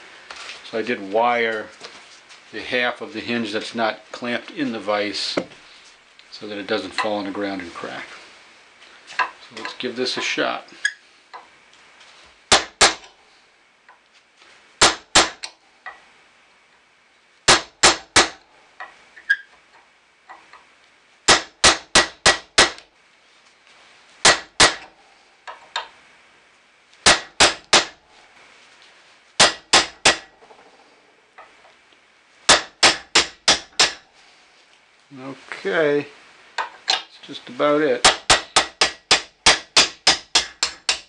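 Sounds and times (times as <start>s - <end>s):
hammer striking steel punch: 12.5s - 13.1s, 14.8s - 15.4s, 17.5s - 18.4s, 21.3s - 22.8s, 24.3s - 24.9s, 27.0s - 28.0s, 29.4s - 30.3s, 32.5s - 34.0s, 38.0s - 41.0s.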